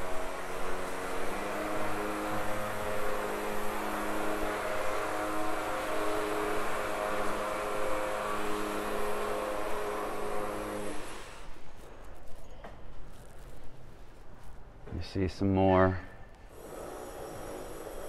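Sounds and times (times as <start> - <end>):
construction machinery hum: 0.0 - 11.5.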